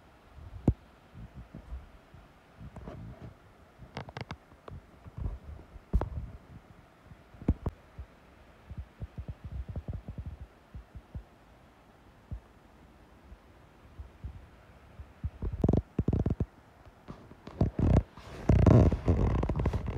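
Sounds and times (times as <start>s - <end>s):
wind buffeting microphone: 8.7s - 11.2s.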